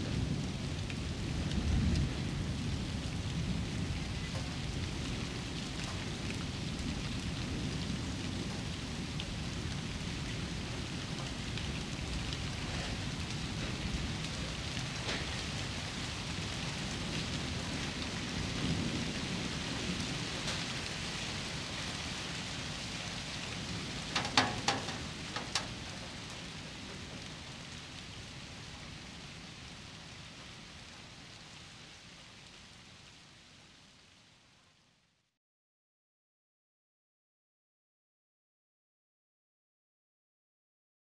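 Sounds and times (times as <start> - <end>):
sharp clicks or knocks: 24.2 - 25.8.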